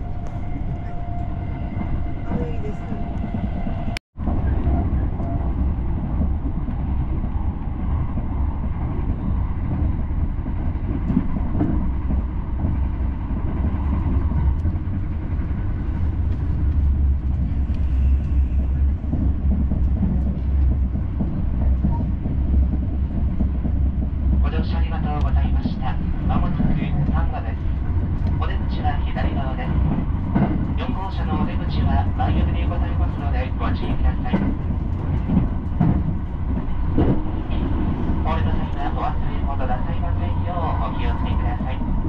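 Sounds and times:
train running gear rumble: 0:00.0 - 0:42.0.

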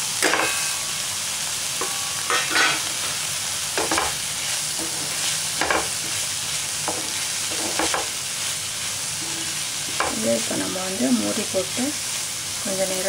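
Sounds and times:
vegetables sizzling in oil: 0:00.0 - 0:13.0
wooden spatula scraping pan: 0:06.9 - 0:08.1, 0:09.2 - 0:10.5.

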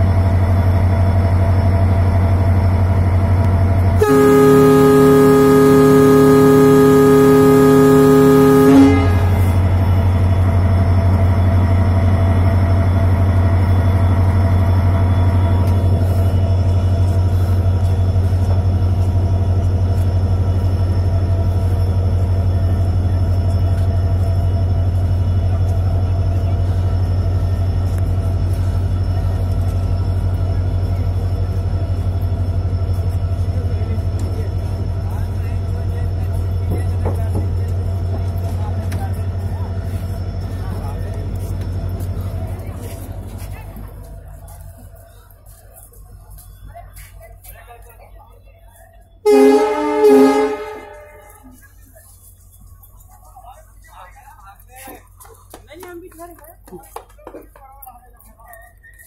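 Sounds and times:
train droning: 0:00.0 - 0:54.2
locomotive air horn: 0:04.0 - 0:10.1, 0:49.2 - 0:51.6.

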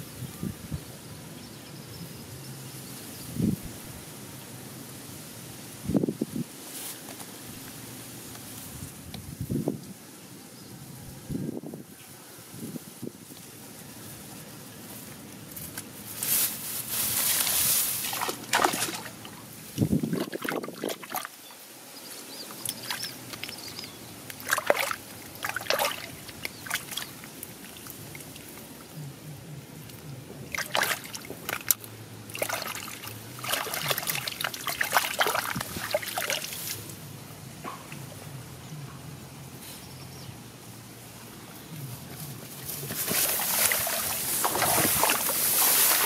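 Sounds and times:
hands splashing in muddy water: 0:17.4 - 0:21.4, 0:22.6 - 0:28.6, 0:30.5 - 0:36.8, 0:42.9 - 0:46.0.

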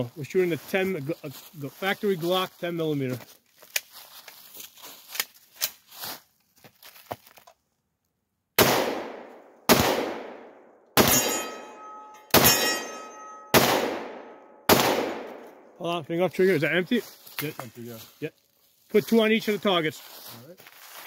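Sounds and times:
pistol shots echoing: 0:08.6 - 0:15.7.

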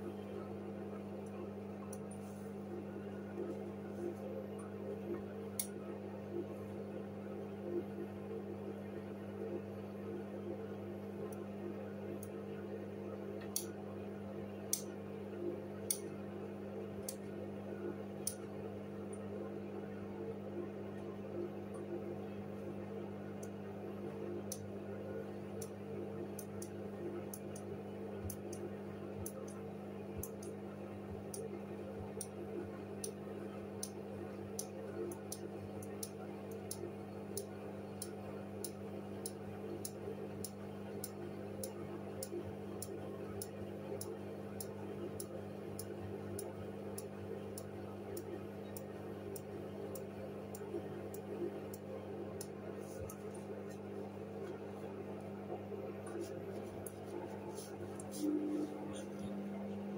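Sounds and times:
washing machine running: 0:23.4 - 0:59.9.

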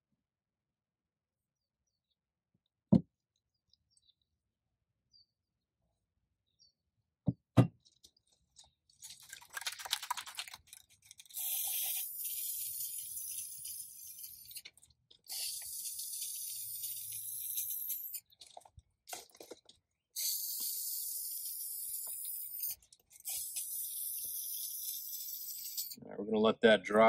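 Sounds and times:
spray can mixing ball rattling: 0:08.5 - 0:26.0
spray paint hissing: 0:09.0 - 0:18.4, 0:20.2 - 0:26.0.

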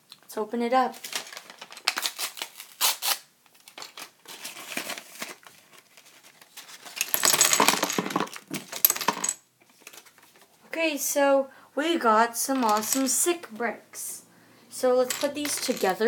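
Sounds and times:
envelope tearing and crinkling: 0:00.9 - 0:06.8.

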